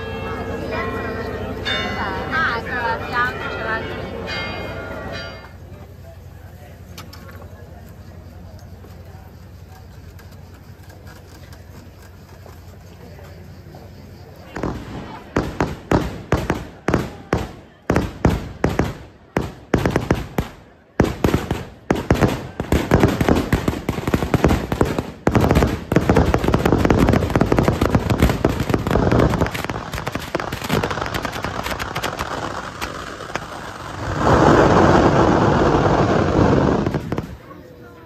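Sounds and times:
firework bangs: 14.4s - 37.8s.

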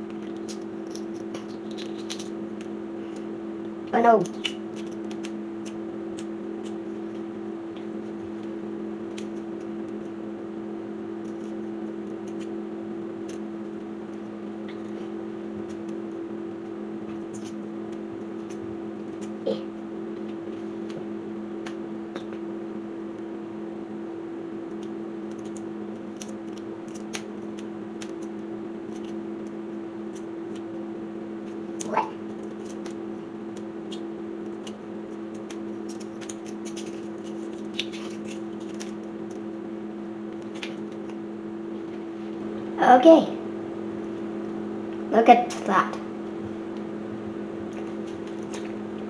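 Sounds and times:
steady hum: 0.0s - 49.0s
eggshell crackling being peeled: 0.1s - 10.2s, 31.7s - 39.5s.

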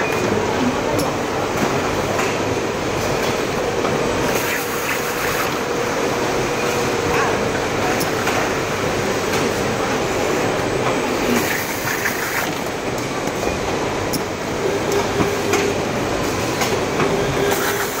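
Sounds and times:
packaging machinery din: 14.8s - 18.0s.

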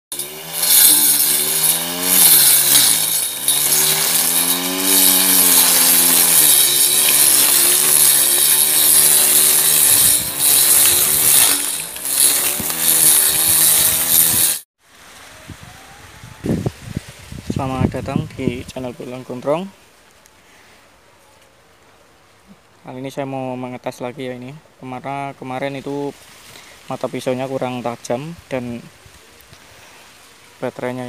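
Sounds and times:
electric grass cutter whining: 0.1s - 14.6s.

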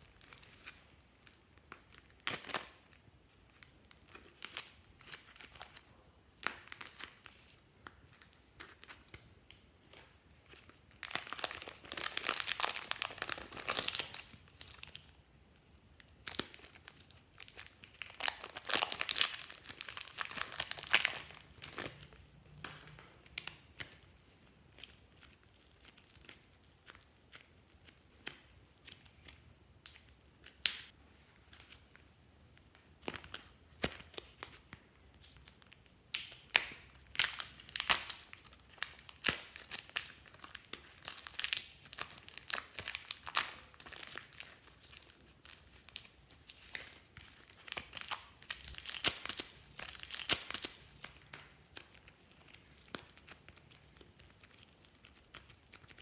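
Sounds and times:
plastic wrapping crinkling and tearing: 0.0s - 15.2s, 16.0s - 56.0s.

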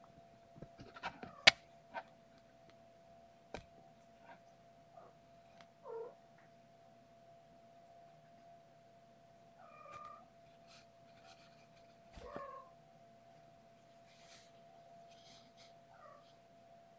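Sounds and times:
faint steady hum: 0.0s - 16.9s.

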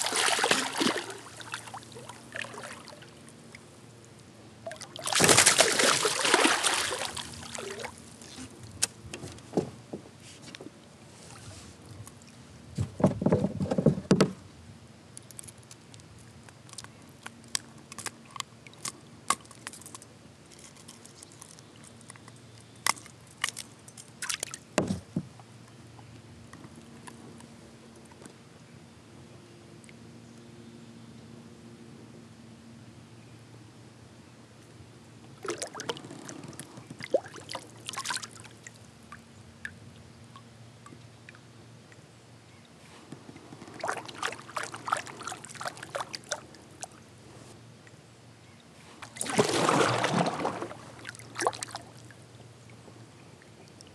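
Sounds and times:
water splashing: 0.0s - 3.2s, 4.6s - 8.5s, 35.4s - 38.8s, 43.6s - 47.0s, 49.0s - 52.1s.

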